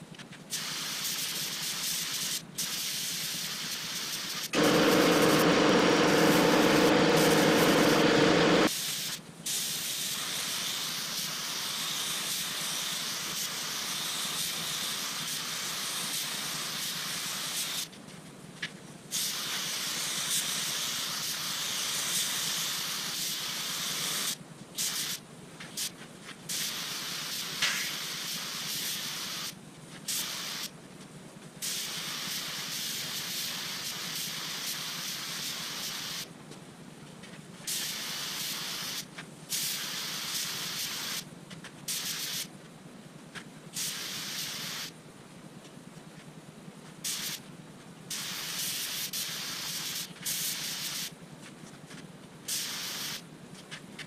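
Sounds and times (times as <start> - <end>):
paint spray gun hissing: 0.5 - 17.9, 19.1 - 25.2, 26.5 - 30.7, 31.6 - 36.3, 37.7 - 41.2, 41.9 - 42.5, 43.8 - 44.9, 47.0 - 47.4, 48.1 - 51.1, 52.5 - 53.2
low rush of air with hum: 4.6 - 8.7.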